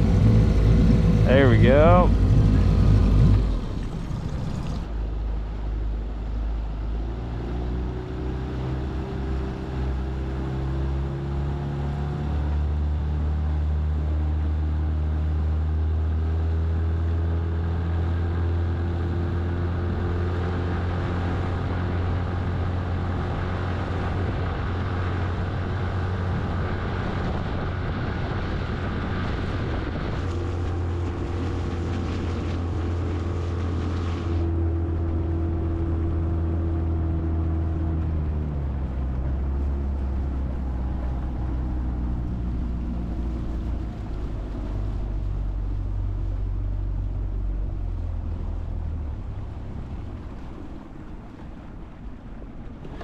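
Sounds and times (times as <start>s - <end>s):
outboard motor running: 0.0s - 53.0s.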